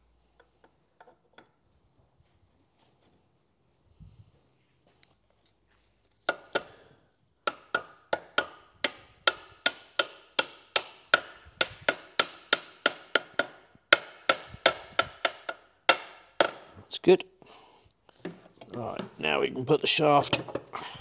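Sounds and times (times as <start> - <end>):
hammer tapping on metal: 7.5 - 16.7.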